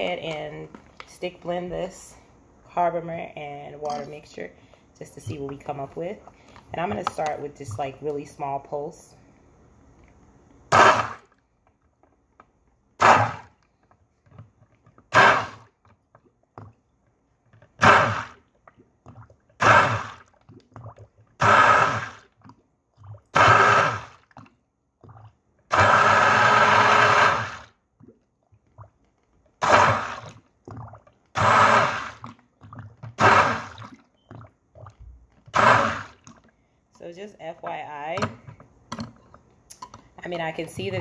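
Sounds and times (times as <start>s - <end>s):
stick blender bursts: 10.7s - 11.3s, 13.0s - 13.5s, 15.1s - 15.6s, 21.4s - 22.2s, 23.4s - 24.1s, 25.7s - 27.6s, 29.6s - 30.2s, 31.4s - 32.2s, 33.2s - 33.8s, 35.5s - 36.2s.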